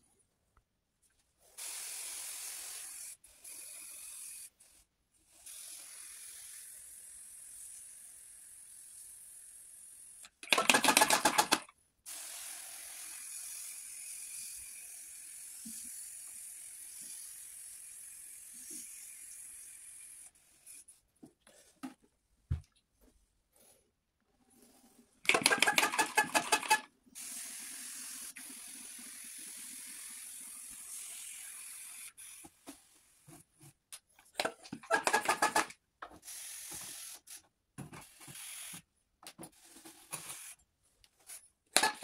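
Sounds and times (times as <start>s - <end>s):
spray bottle sputtering bursts: 1.5s - 4.5s, 25.3s - 32.7s, 34.4s - 37.5s, 38.1s - 38.9s.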